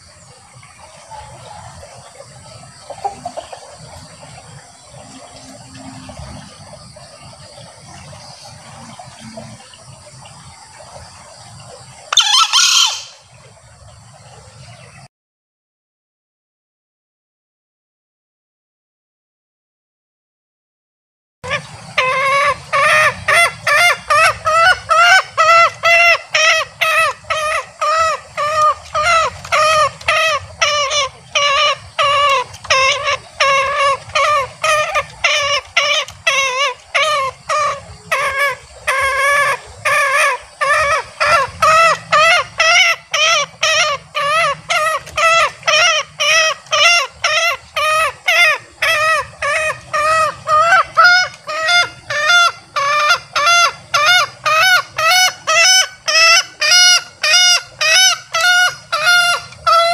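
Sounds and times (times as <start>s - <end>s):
junglefowl cackling call: 1.0s - 3.9s, 12.1s - 13.3s, 21.4s - 59.9s.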